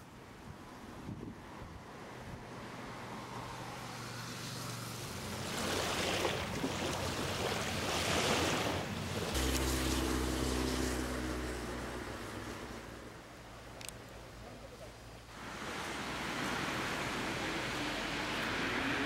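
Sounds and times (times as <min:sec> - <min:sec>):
lake water: 0:00.0 - 0:19.0
wind on microphone: 0:00.5 - 0:02.5
low engine drone: 0:09.2 - 0:13.7.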